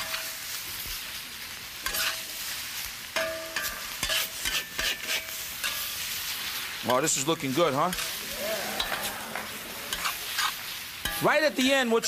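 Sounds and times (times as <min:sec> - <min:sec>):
noodles sizzling in wok: 0:00.0 - 0:12.0
metal spatula scraping wok: 0:01.8 - 0:02.4, 0:03.2 - 0:07.1, 0:07.8 - 0:11.7.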